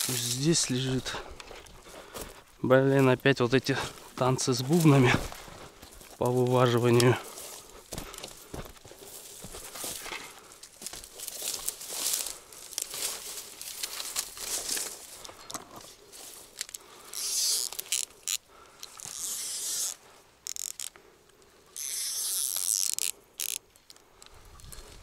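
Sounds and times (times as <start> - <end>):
footsteps through dry grass: 0.0 - 20.4, 23.7 - 25.0
fishing reel buzzing: 17.0 - 20.9, 21.7 - 23.6.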